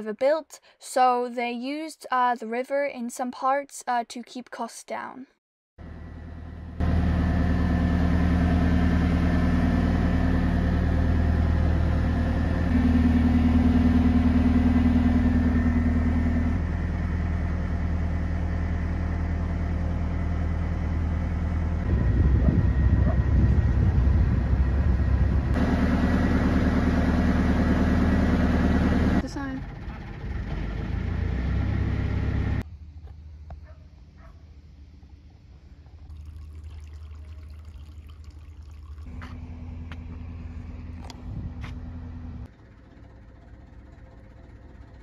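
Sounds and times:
boat engine running: 5.8s - 32.6s, 35.6s - 45.0s.

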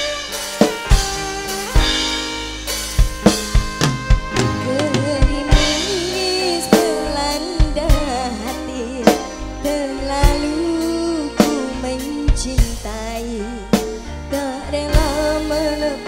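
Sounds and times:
loud irregular drum strokes: 0.0s - 8.2s
wavering melody and bass: 0.0s - 16.0s.

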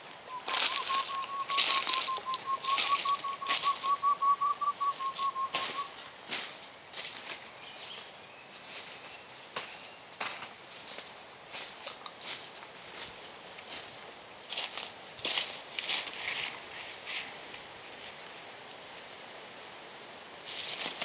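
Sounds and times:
steady whistled note: 0.3s - 6.1s
boots crunching through dry leaves: 0.3s - 17.4s.

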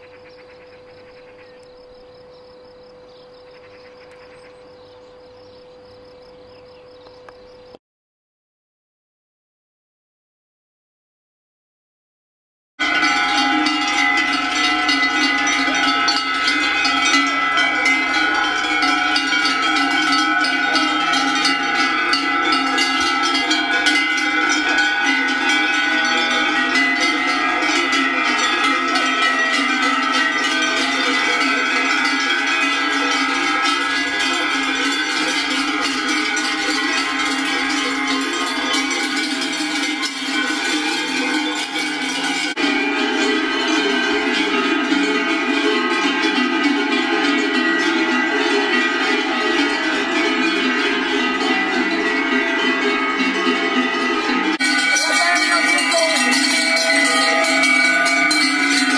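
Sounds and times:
cowbells clanging: 12.8s - 58.9s.

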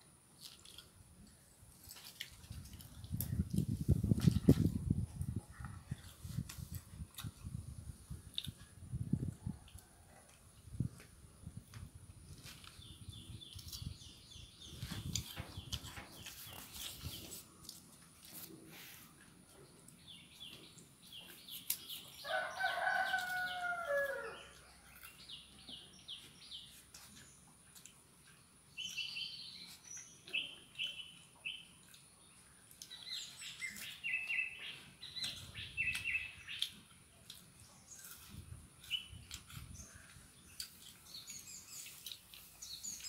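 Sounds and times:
small birds chirping: 12.3s - 43.0s
rooster crowing: 22.2s - 24.6s.

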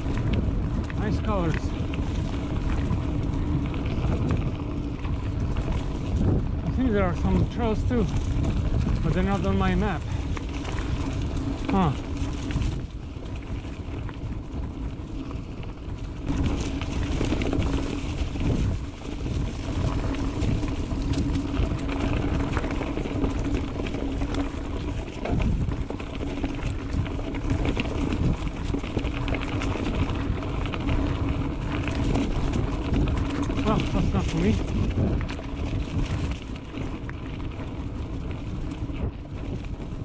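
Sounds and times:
bike knocking and rattling: 0.0s - 40.0s
bike tyres rumbling on dirt: 0.0s - 40.0s
low hum: 0.0s - 40.0s
wind on microphone: 0.0s - 40.0s.

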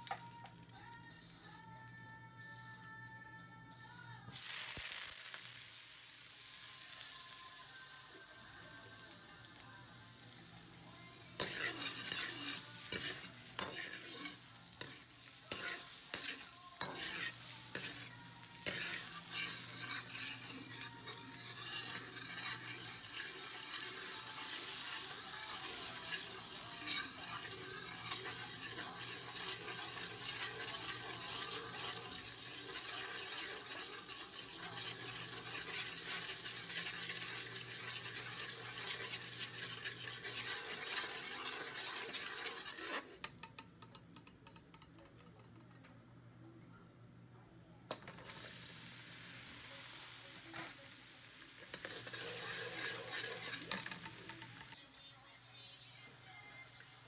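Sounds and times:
oil and egg sizzling in a wok: 0.0s - 1.5s, 4.3s - 45.8s, 47.9s - 57.0s
metal ladle scraping a wok: 11.4s - 43.4s, 51.6s - 54.8s.

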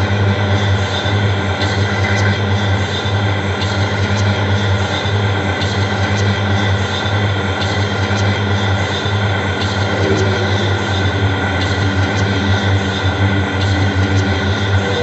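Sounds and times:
harsh noise drone: 0.0s - 15.0s
strong low hum: 8.3s - 15.0s.

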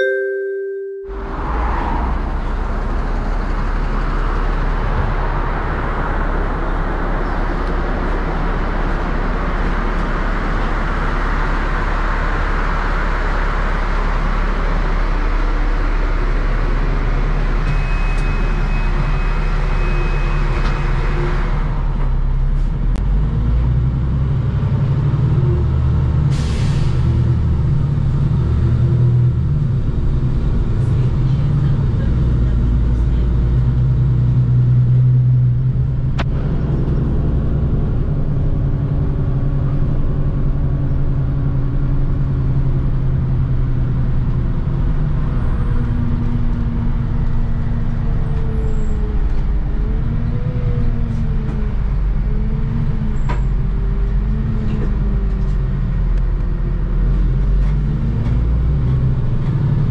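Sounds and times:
steady high beep: 0.0s - 1.5s
bus engine idling: 0.0s - 59.9s
street noise: 0.0s - 59.9s.

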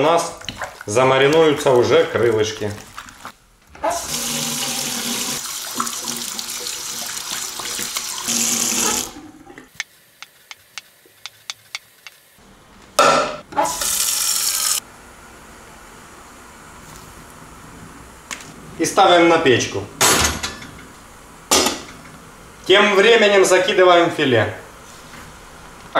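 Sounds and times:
water running from tap: 4.0s - 9.2s, 13.7s - 14.8s.

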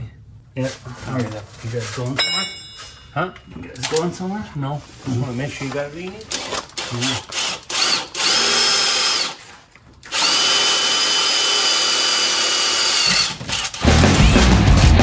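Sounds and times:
impact driver drilling into steel: 6.3s - 9.5s, 10.1s - 13.9s.

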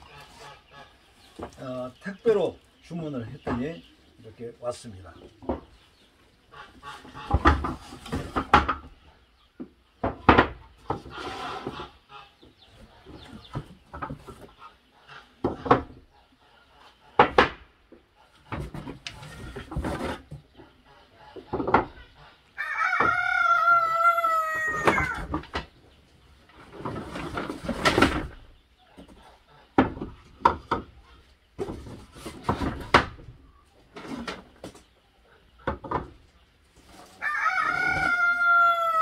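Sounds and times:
wooden boxes knocking and scraping: 3.2s - 3.9s, 5.2s - 6.0s, 7.0s - 12.0s, 12.8s - 14.6s, 15.4s - 16.1s, 17.2s - 20.8s, 21.4s - 22.0s, 24.5s - 25.8s, 26.4s - 35.0s, 35.6s - 39.0s
rooster crowing: 22.6s - 25.2s, 37.2s - 39.0s.

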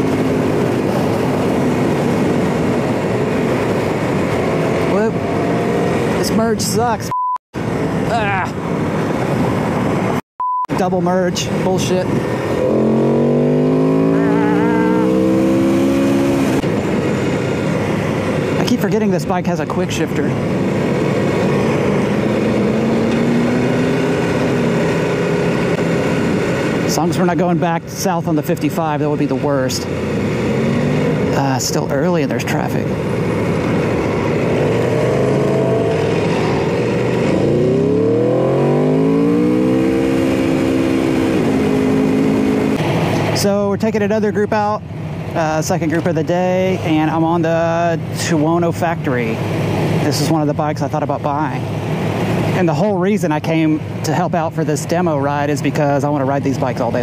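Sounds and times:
motorcycle engine accelerating: 0.0s - 6.2s, 11.7s - 18.8s, 20.3s - 43.5s.

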